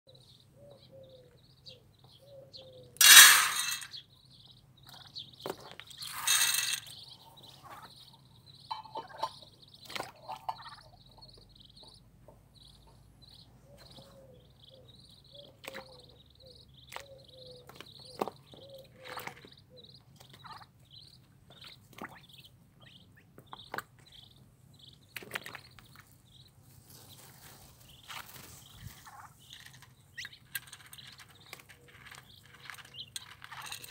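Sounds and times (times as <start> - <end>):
pellets poured into steel bowl: 3.0 - 3.9, 6.0 - 6.9
ducklings peeping: 3.9 - 5.9, 6.8 - 33.9.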